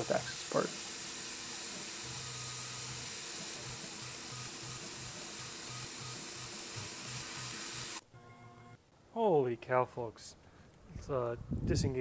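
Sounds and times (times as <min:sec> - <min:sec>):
mill machining aluminium: 0:00.0 - 0:08.0
mist coolant spraying hiss: 0:00.0 - 0:08.0.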